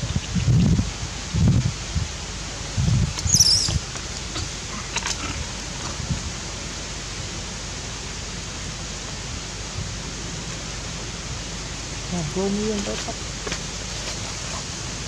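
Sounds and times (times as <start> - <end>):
outdoor background hiss: 0.0 - 15.0
faint soft rustles: 12.7 - 15.0.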